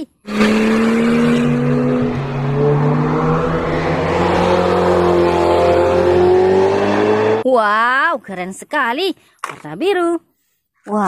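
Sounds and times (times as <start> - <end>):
car engine running: 0.3 - 7.4.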